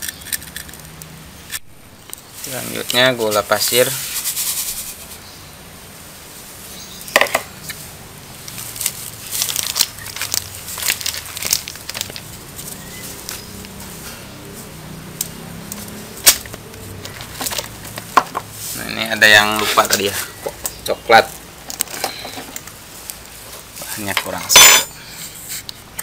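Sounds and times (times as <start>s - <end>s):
rustles and clicks: 7.6s - 25.9s.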